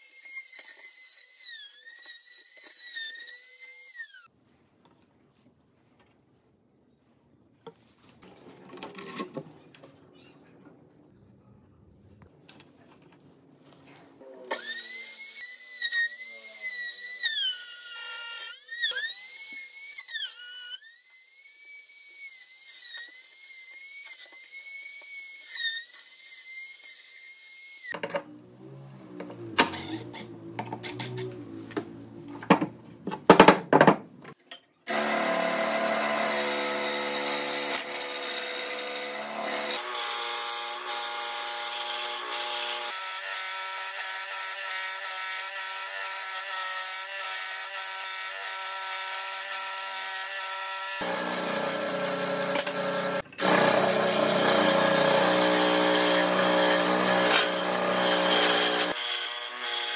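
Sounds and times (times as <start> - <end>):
scroll saw buzzing: 0.0 - 4.3, 14.5 - 28.0, 34.9 - 59.9
router whining cutting wood: 34.9 - 59.9.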